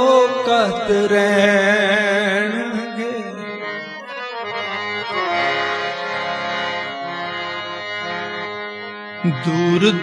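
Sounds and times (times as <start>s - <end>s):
person singing devotional song: 0.0s - 7.5s, 8.3s - 10.0s
harmonium sustained notes: 0.0s - 10.0s.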